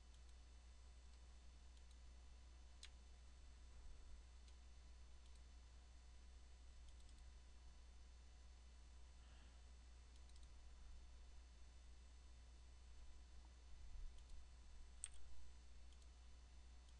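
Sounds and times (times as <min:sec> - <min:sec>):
computer mouse clicks: 0:00.0 - 0:00.4, 0:01.1 - 0:02.0, 0:02.8 - 0:03.0, 0:05.2 - 0:05.5, 0:06.8 - 0:07.3, 0:10.1 - 0:10.6, 0:14.1 - 0:16.2
steady low hum: 0:00.0 - 0:16.9.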